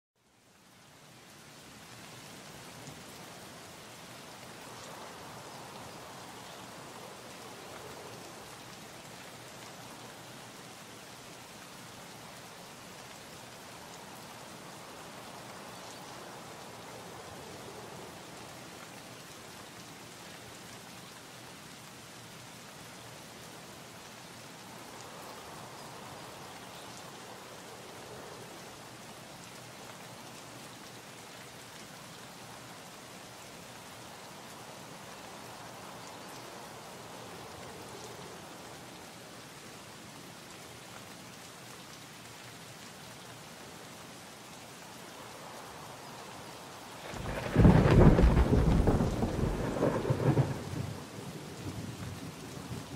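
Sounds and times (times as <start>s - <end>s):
steady rain: 0.1s - 52.9s
thunder rumble: 47.0s - 51.2s.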